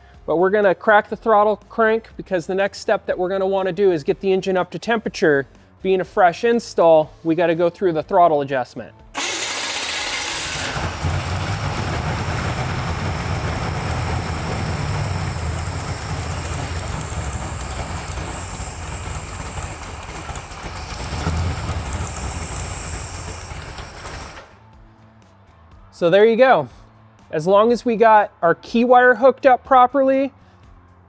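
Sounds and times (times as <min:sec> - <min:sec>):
starter motor cranking: 0:09.2 - 0:24.6
car engine running: 0:09.4 - 0:24.6.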